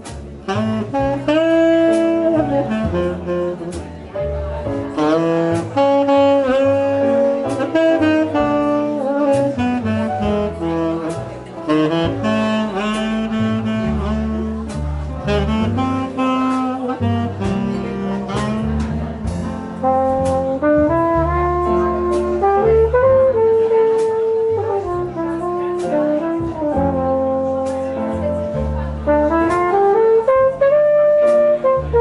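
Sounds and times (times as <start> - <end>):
double bass: 0.0 - 32.0
drums: 0.0 - 32.0
piano: 0.0 - 32.0
tenor saxophone ballad melody: 0.3 - 32.0.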